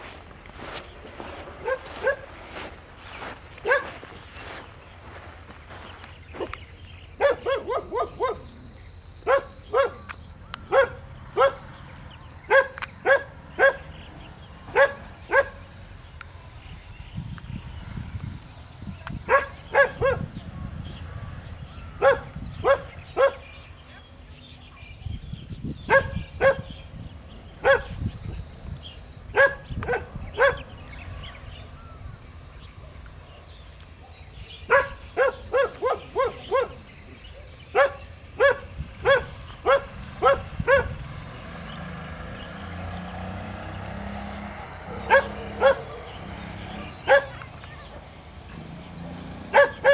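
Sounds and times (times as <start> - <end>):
puppies barking high-pitched yaps: 1.6 - 4.1, 7.2 - 8.6, 9.2 - 11.8, 12.5 - 13.9, 14.7 - 15.6, 19.3 - 20.3, 22.0 - 23.4, 25.9 - 26.7, 27.6 - 28.0, 29.3 - 30.7, 34.6 - 41.1, 44.9 - 47.5, 49.5 - 49.9.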